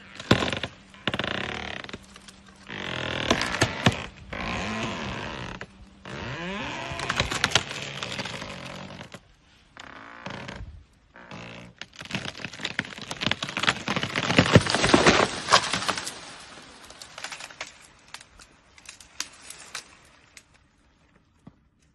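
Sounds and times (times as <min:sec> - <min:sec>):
wood cracking and branches snapping: 0:00.0 - 0:09.2, 0:09.8 - 0:20.6.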